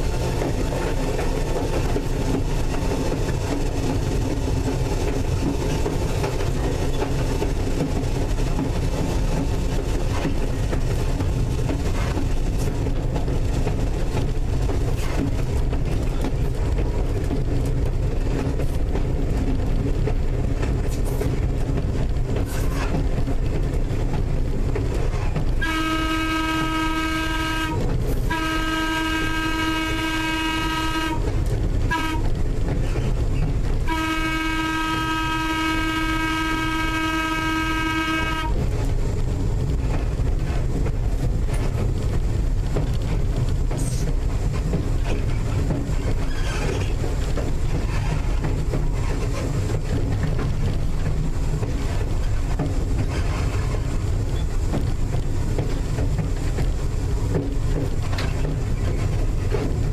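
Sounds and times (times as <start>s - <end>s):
electric train running rumble: 0.0s - 59.9s
wheels clicking over rail joints: 0.0s - 59.9s
train horn blasts: 25.6s - 31.3s, 31.9s - 32.4s, 33.8s - 38.6s.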